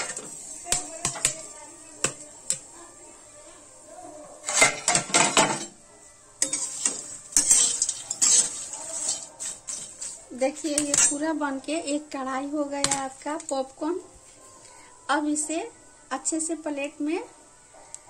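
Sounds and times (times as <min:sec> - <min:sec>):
metal spatula scraping pan: 0:00.0 - 0:02.7, 0:04.4 - 0:05.8, 0:06.4 - 0:11.4
metal lid clinking: 0:04.5 - 0:05.8, 0:06.4 - 0:11.2.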